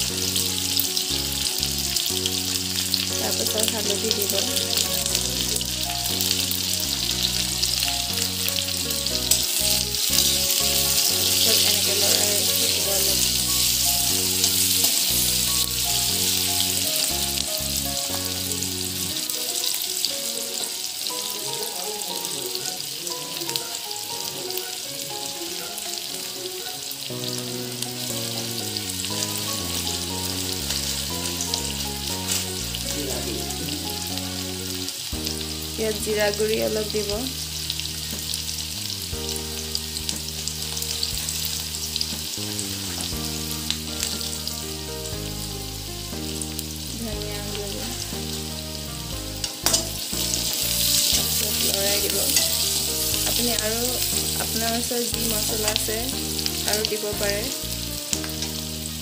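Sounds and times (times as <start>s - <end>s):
background music: 0.0s - 59.0s
vegetables sizzling in hot oil: 0.0s - 59.0s
metal spoon stirring in wok: 49.6s - 53.6s.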